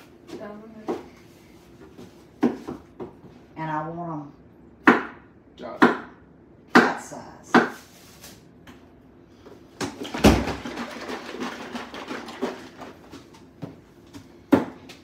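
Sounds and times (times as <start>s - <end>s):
knife chopping on wooden board: 4.8s - 5.2s.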